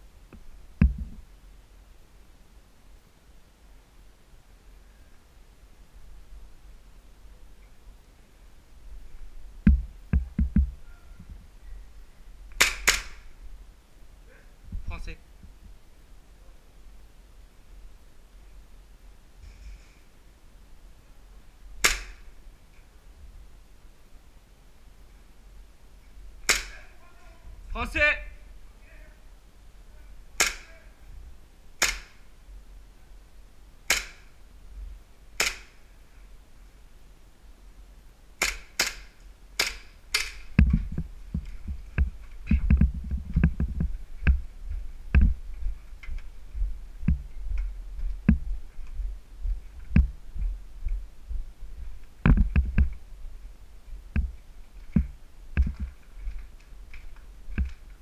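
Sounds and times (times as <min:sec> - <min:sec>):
footsteps and gear thuds: 0:00.8 - 0:01.2, 0:09.6 - 0:10.8, 0:40.5 - 0:53.0, 0:54.1 - 0:58.0
airsoft gun shots: 0:12.6 - 0:13.3, 0:21.8 - 0:22.3, 0:26.4 - 0:26.8, 0:30.4 - 0:30.8, 0:31.8 - 0:32.2, 0:33.9 - 0:34.3, 0:35.4 - 0:35.8, 0:38.4 - 0:40.4.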